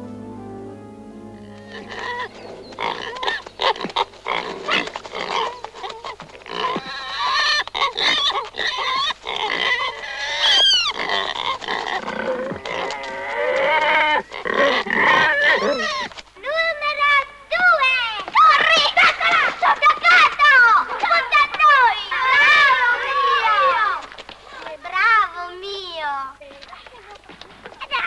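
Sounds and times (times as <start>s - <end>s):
pigs squealing and grunting: 1.7s - 16.2s, 22.1s - 23.8s.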